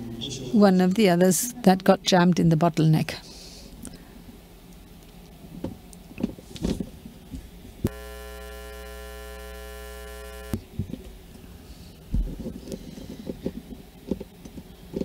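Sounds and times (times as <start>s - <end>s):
electrical mains buzz: 7.7s - 11.3s.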